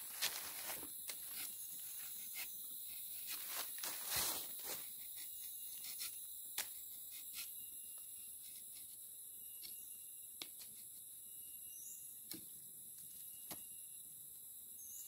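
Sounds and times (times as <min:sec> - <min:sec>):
rustle of dry leaf litter: 0:00.0 - 0:02.4, 0:03.2 - 0:05.2
high insect chorus: 0:00.0 - 0:15.0
knife scraping tree bark: 0:00.2 - 0:03.8, 0:04.7 - 0:11.1.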